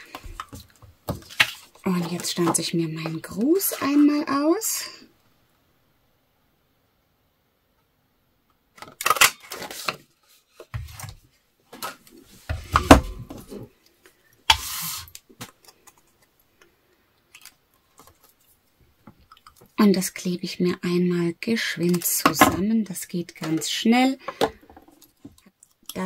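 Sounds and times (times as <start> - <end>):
paper and plastic rustling and clicks: 0.0 - 4.2, 8.8 - 13.6, 17.3 - 18.6.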